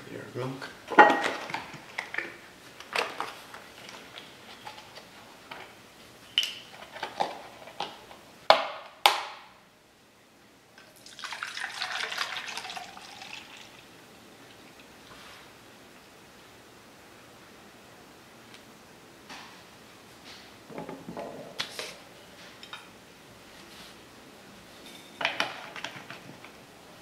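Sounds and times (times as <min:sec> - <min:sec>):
liquid pouring: 0:10.9 - 0:15.1
utensils and dishes clinking: 0:24.8 - 0:25.9.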